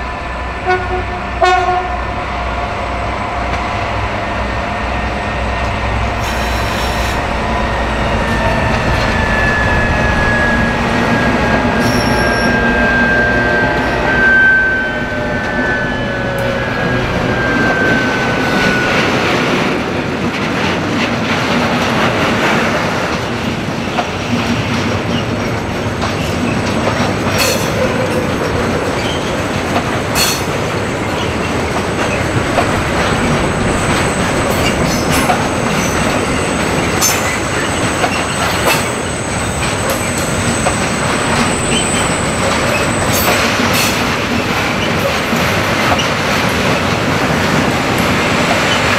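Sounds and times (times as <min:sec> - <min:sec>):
diesel locomotive whine: 0:00.0 - 0:48.9
train wheels rumbling on rail: 0:00.0 - 0:48.9
high wheel squeal: 0:05.2 - 0:20.0, 0:27.4 - 0:46.2.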